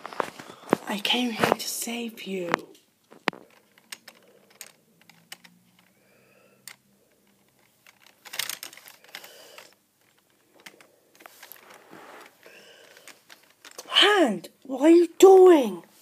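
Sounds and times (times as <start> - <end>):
toy pieces clattering: 2.5 - 6.0, 6.6 - 14.0
toy pieces clicking: 3.3 - 13.9.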